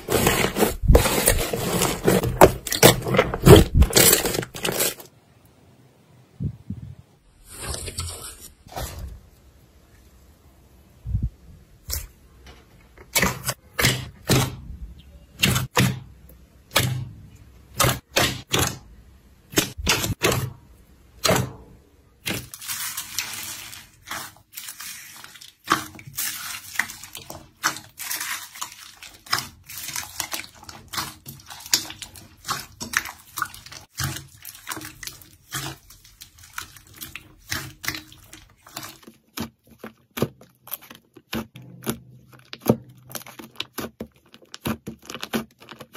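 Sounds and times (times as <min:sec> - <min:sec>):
slime squelching and popping: 0:22.2 - 0:45.9.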